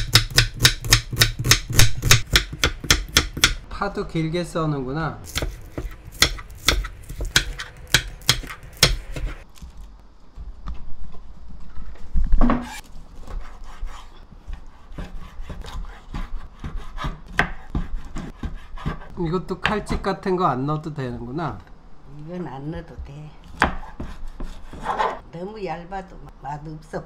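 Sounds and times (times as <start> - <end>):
knife chopping on cutting board: 0.0 - 3.6, 5.3 - 9.4, 13.9 - 20.0, 23.5 - 25.1.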